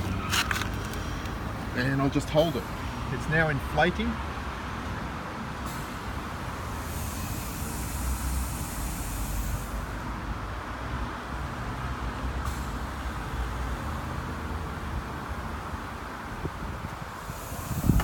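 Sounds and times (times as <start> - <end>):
compressed air hissing into tyre: 5.6 - 10.3, 16.9 - 18.0.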